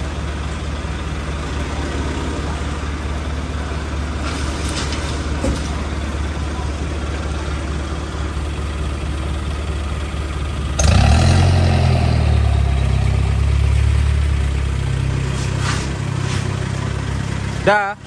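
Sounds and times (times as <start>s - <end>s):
pickup truck engine revving: 10.8s - 17.7s.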